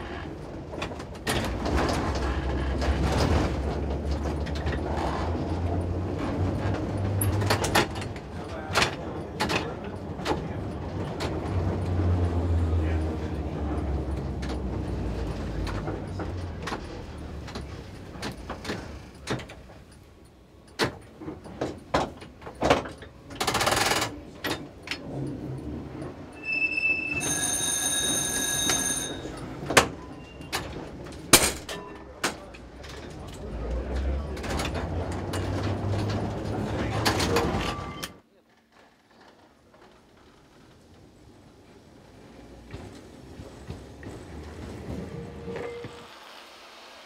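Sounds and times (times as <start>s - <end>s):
wheels clicking and knocking: 0.0s - 26.4s
tram motor hum and rumble: 0.0s - 38.1s, 39.4s - 47.0s
passing tram rush: 0.0s - 38.2s, 39.4s - 47.0s
high metallic ringing: 26.3s - 29.4s.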